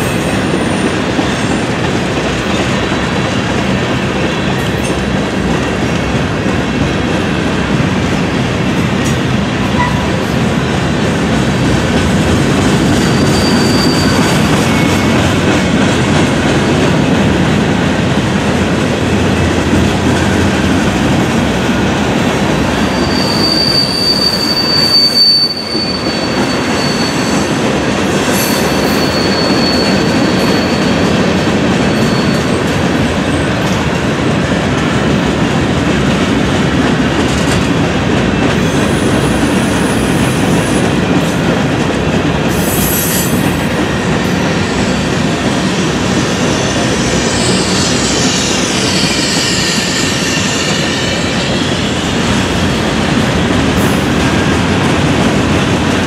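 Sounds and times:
train wheels rumbling on rails: 0.0 - 56.0
train wheel squeals: 8.9 - 17.2, 19.3 - 34.3, 36.2 - 55.8.

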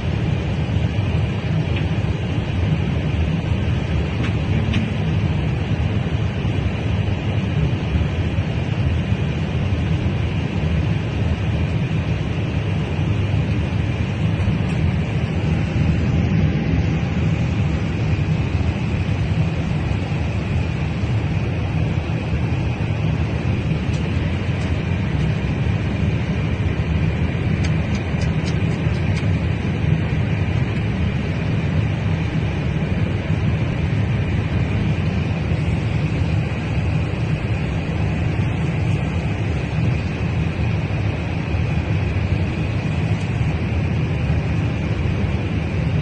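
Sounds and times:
airliner cabin rumble: 0.0 - 46.0
high whine: 7.5 - 46.0.

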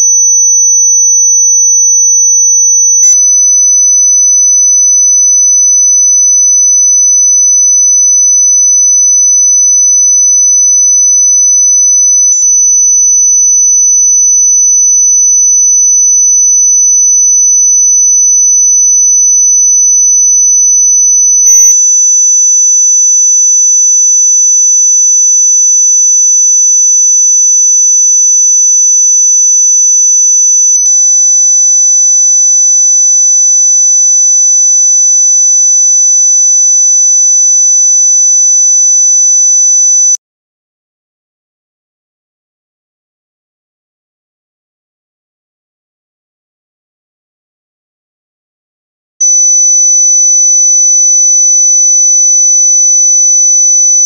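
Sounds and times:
high-pitched sine tone: 0.0 - 23.8, 28.8 - 40.2, 49.2 - 54.0.

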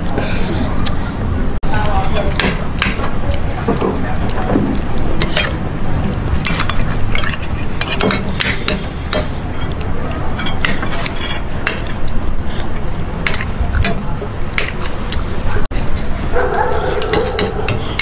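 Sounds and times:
low background rumble: 0.0 - 18.0
spoons scraping ceramic plates: 6.4 - 12.7.

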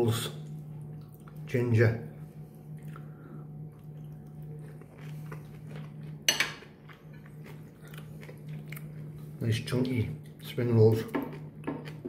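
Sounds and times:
steady low hum: 0.0 - 12.0
chewing vegetables: 2.6 - 9.4, 10.1 - 12.0.

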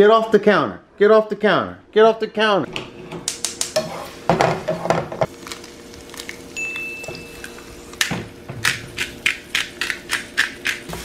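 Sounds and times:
pepper grinder twisting: 8.6 - 10.9.

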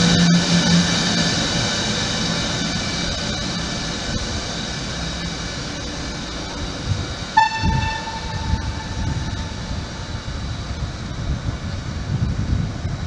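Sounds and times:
locomotive rumbling: 0.0 - 13.0
train horn: 7.4 - 9.6.

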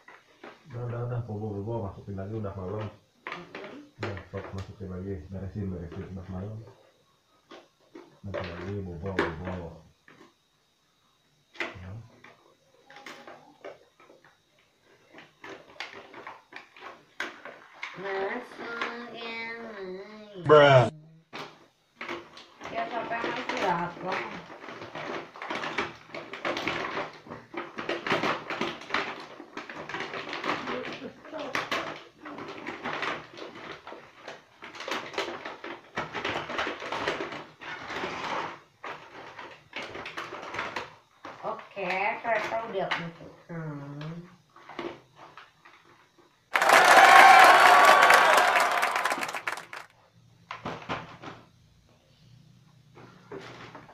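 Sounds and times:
plastic and cardboard rustling: 21.4 - 41.6.

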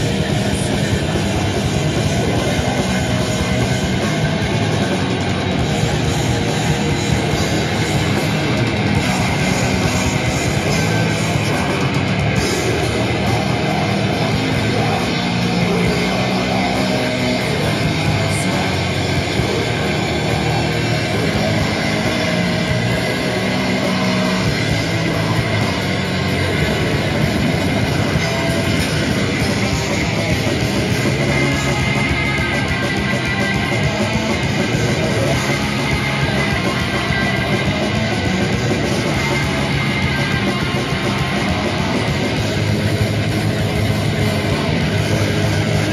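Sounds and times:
bass guitar: 0.0 - 45.9
distorted electric guitars: 0.0 - 45.9
drums: 0.0 - 45.9.

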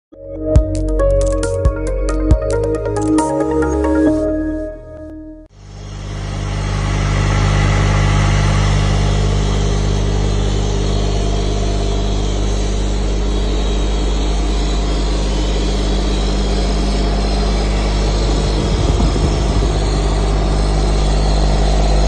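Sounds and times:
vacuum pump running: 5.5 - 22.0.

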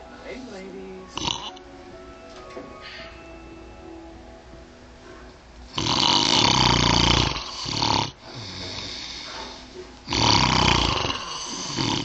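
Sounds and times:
man snoring: 1.2 - 1.6, 5.7 - 9.3, 10.1 - 12.0
quiet breathing: 7.1 - 10.5.

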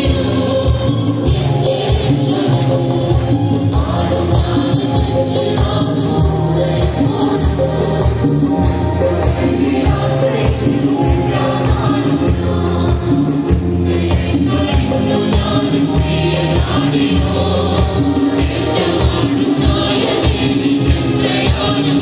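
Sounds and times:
congregation singing: 0.0 - 22.0
tambourine beat: 0.0 - 22.0.

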